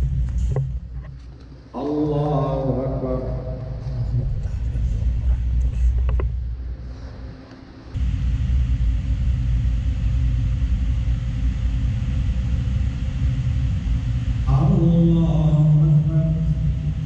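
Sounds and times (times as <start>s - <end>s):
low background rumble: 0.0s - 17.0s
man chanting prayer: 1.7s - 6.0s, 14.5s - 17.0s.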